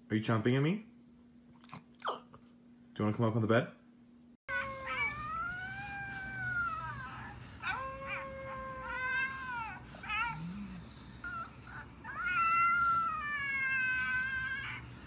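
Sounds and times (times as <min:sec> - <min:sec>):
dog whining: 0:04.5 - 0:15.0.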